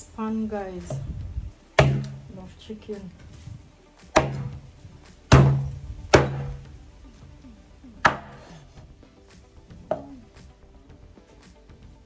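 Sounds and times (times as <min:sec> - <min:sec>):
knife chopping on cutting board: 0:04.2 - 0:04.6, 0:05.3 - 0:06.6, 0:08.0 - 0:08.5.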